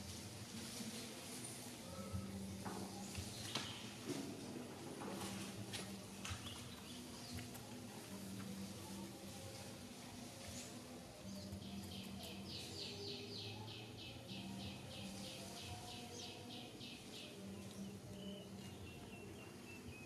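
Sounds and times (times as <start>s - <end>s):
faint outdoor hum: 0.0s - 20.0s.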